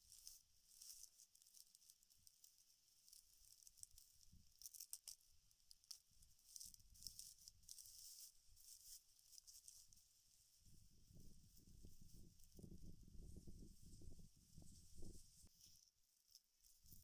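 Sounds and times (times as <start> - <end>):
dry fiber rustling: 0.0 - 17.0
small sharp clicks: 0.1 - 9.9.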